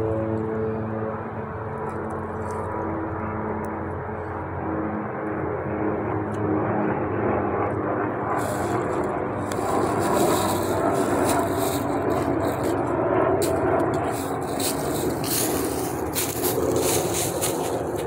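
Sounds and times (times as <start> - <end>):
traffic rumble and hiss: 0.0 - 7.1, 8.1 - 18.0
crackly rustling near microphone: 8.3 - 18.0.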